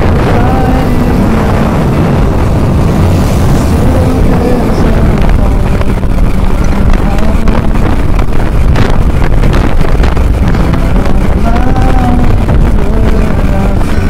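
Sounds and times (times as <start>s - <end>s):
motorbike riding: 0.0s - 14.0s
wind buffeting microphone: 0.0s - 14.0s.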